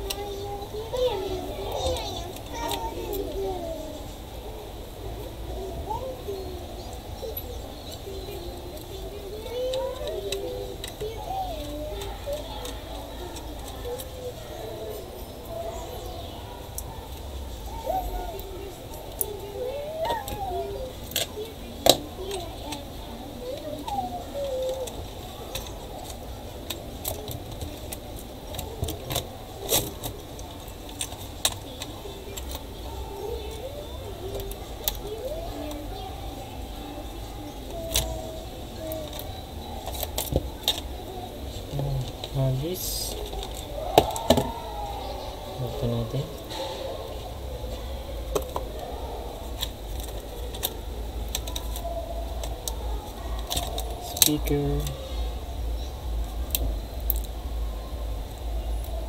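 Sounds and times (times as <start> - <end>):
steady low hum: 16.4 - 59.0
low background rumble: 54.9 - 59.0.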